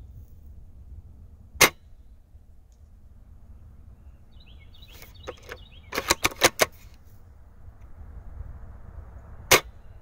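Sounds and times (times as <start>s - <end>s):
rifle bolt metallic clicks: 5.0s - 7.0s.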